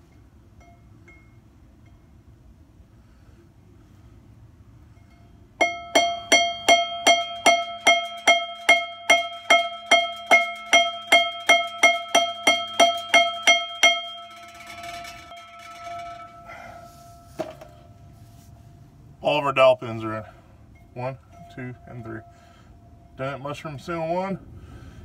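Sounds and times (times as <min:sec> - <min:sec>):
flywheel ringing bell-like: 0:05.0 - 0:18.1, 0:20.8 - 0:23.6.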